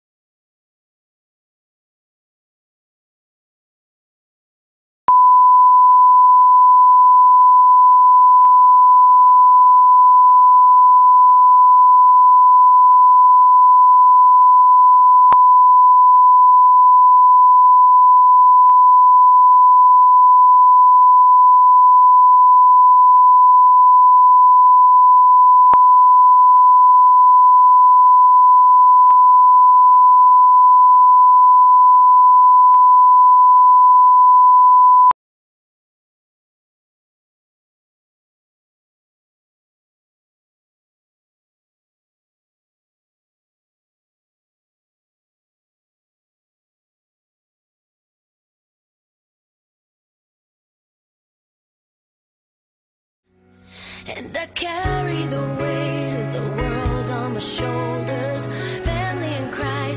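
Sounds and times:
steady test tone beep: 0:05.1 - 0:35.2.

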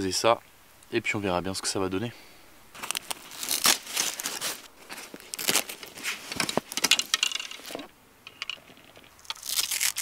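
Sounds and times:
fabric rustling: 0:02.7 - 0:07.9
fishing rods clicking and knocking: 0:06.3 - 0:09.4.

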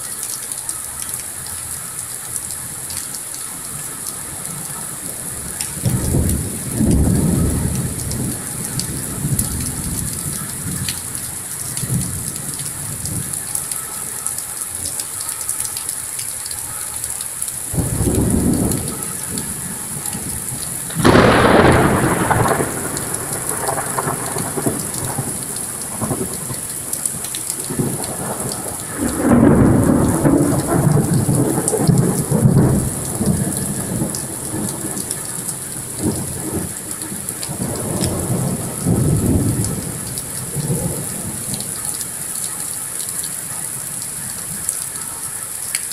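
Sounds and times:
steady rain hiss: 0:00.0 - 0:45.9
thunder rumbling: 0:03.7 - 0:13.6, 0:17.7 - 0:43.2.

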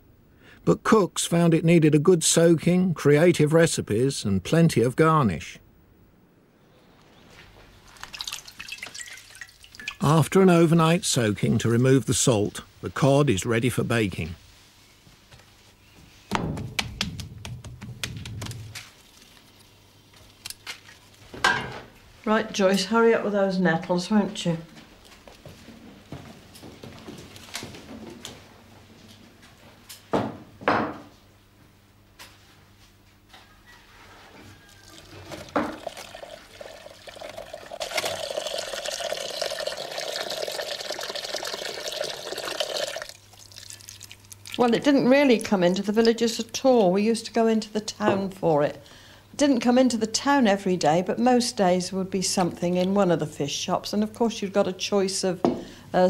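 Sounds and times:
tap water running into a bowl: 0:07.9 - 0:10.2, 0:34.8 - 0:44.8
sharp knock: 0:16.3 - 0:18.7.

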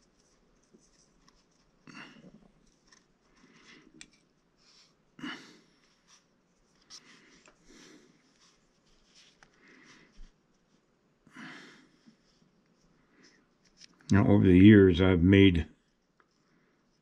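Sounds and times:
quiet breathing: 0:01.8 - 0:13.7, 0:15.8 - 0:17.0
fingers handling rod and wire: 0:13.6 - 0:14.1.

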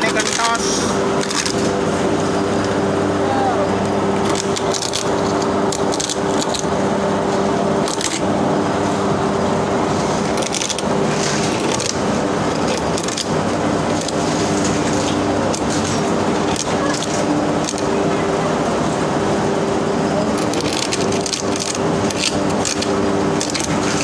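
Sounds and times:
motor hum: 0:00.0 - 0:24.0.

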